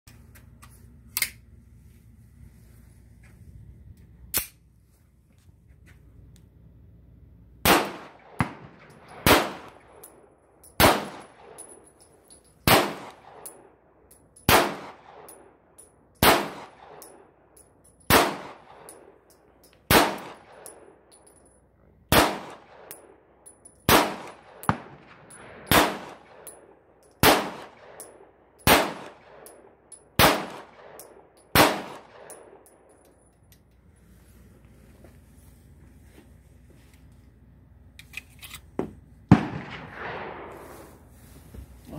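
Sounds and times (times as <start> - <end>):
pistol shots with echo: 7.6 - 10.0, 10.8 - 11.6, 12.6 - 13.6, 14.5 - 15.4, 16.2 - 17.1, 18.1 - 19.0, 19.9 - 20.7, 22.1 - 23.0, 23.9 - 26.6, 27.2 - 29.6, 30.2 - 32.7, 39.3 - 40.6.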